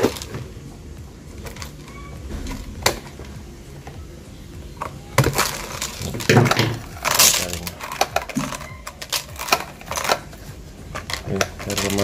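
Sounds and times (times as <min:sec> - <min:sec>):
plastic pots clicking and knocking: 0:00.0 - 0:00.5, 0:04.8 - 0:12.0.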